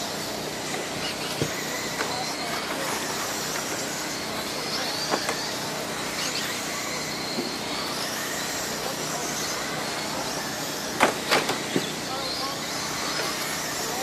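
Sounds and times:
rc car motors whining: 0:00.0 - 0:14.0
cars bumping sharp knocks: 0:10.9 - 0:11.9.

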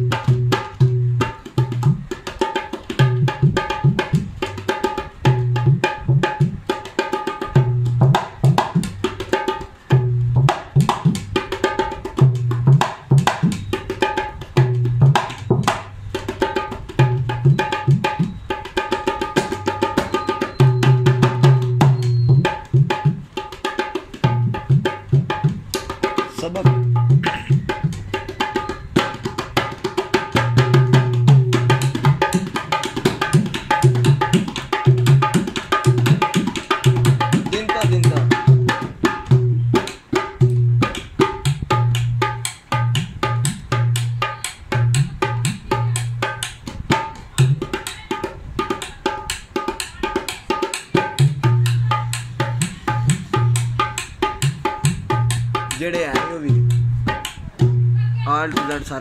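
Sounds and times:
hand drum fast rhythm: 0:00.0 - 0:59.0.

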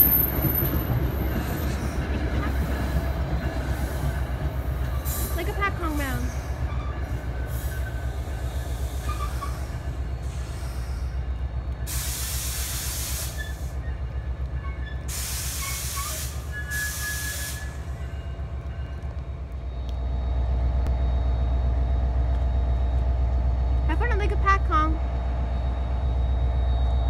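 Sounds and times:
diesel locomotive rumbling: 0:00.0 - 0:27.0
loud air hiss bursts: 0:11.9 - 0:13.7, 0:15.1 - 0:17.8.

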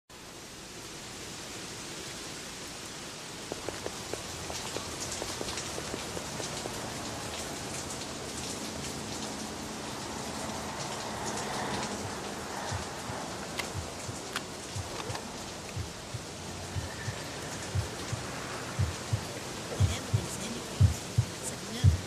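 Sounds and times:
steady rain falling: 0:00.1 - 0:22.0
drips and splashes: 0:03.4 - 0:19.8.

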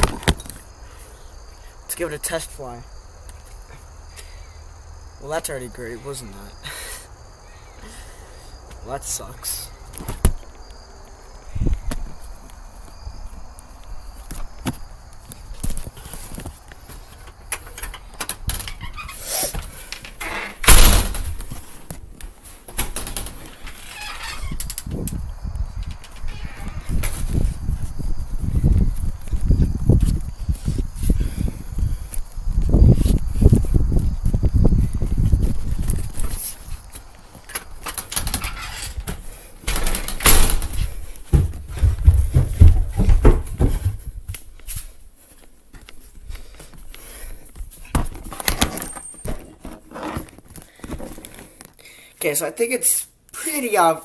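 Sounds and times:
footsteps: 0:25.8 - 0:31.2, 0:31.8 - 0:51.6
soft footsteps: 0:40.7 - 0:48.2.

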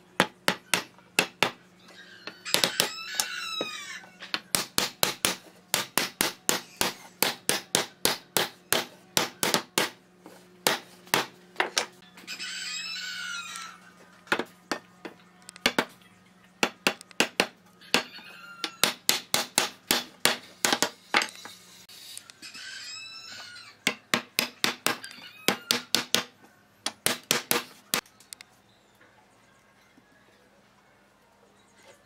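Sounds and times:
rooster crowing: 0:01.9 - 0:04.2, 0:12.1 - 0:14.0, 0:22.3 - 0:23.8.

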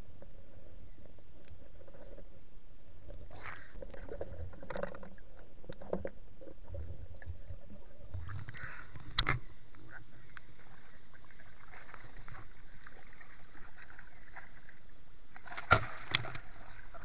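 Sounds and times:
muffled underwater river rumble: 0:00.0 - 0:17.0
sharp water splash: 0:15.5 - 0:16.4.

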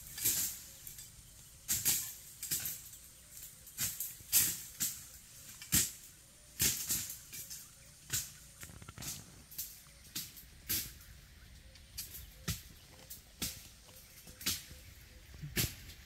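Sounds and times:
dry leaves rustling and crackling: 0:00.0 - 0:11.2.

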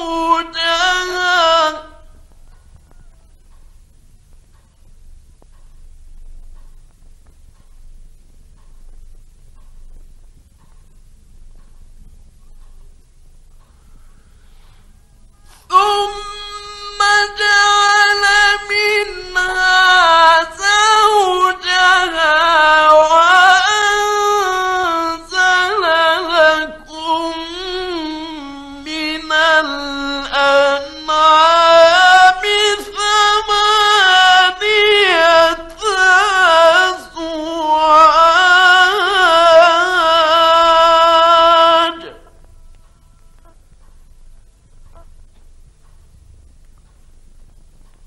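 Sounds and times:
man chanting melodically: 0:00.0 - 0:03.6, 0:13.6 - 0:43.6
short breaths: 0:13.7 - 0:15.7.

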